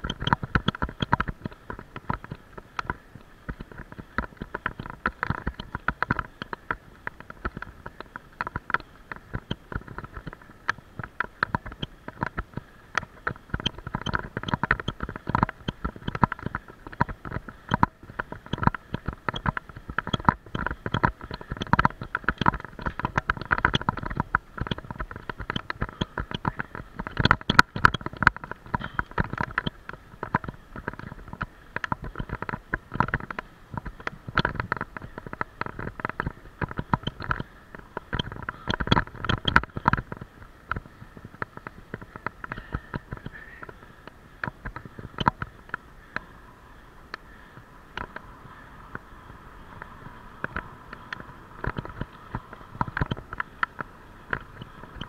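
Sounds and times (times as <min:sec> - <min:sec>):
bicycle rattling on road: 0:00.0 - 0:55.0
steady riding rumble: 0:00.0 - 0:55.0.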